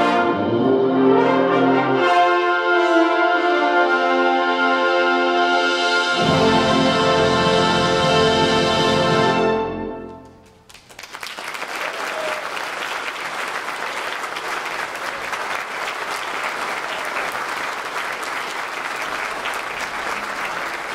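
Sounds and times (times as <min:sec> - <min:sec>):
brass band chord: 0:00.0 - 0:10.3
audience applause: 0:10.2 - 0:20.9.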